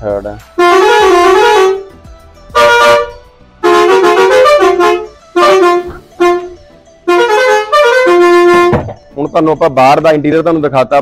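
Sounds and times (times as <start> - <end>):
musical truck horn tune: 0.5 - 9.0.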